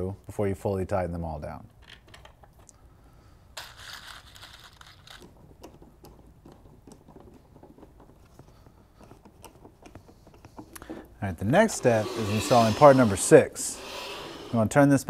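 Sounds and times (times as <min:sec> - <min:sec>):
light clicks and knocks: 0:05.1 - 0:11.1
rasping scrape: 0:11.6 - 0:14.8
screwdriver turning screws in wood: 0:11.7 - 0:14.6.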